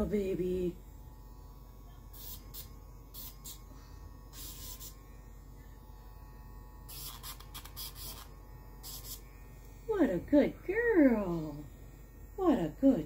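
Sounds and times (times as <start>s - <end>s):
nail grinder humming: 0.0s - 13.0s
high grinding hiss: 6.8s - 10.0s.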